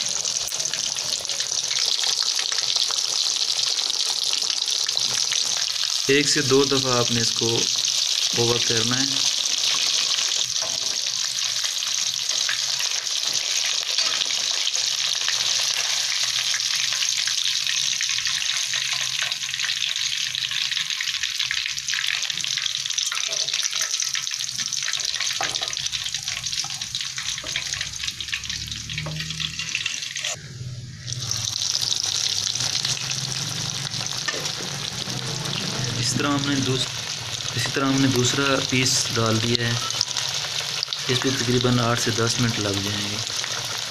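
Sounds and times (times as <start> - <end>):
fish sizzling in hot oil: 0.0 - 43.9.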